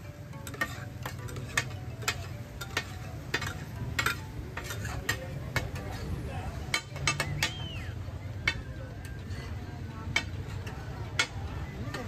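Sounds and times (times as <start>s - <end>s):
light sizzle: 0.0s - 7.8s
metal spatulas scraping on griddle: 0.0s - 7.8s, 8.4s - 12.0s.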